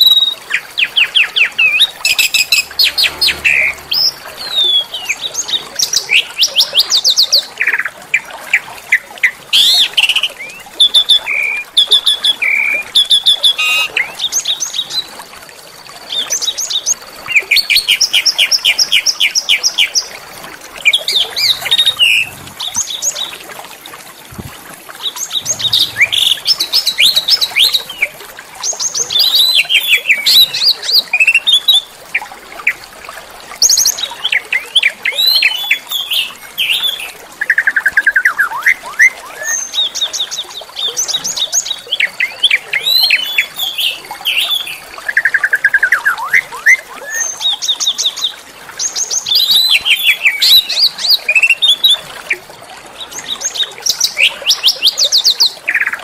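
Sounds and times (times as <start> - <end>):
small songbirds chirping and trilling: 25.2 - 28.0.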